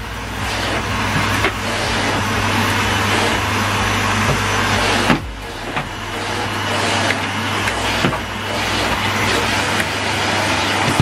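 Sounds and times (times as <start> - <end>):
vacuum cleaner suction roar: 0.0 - 11.0.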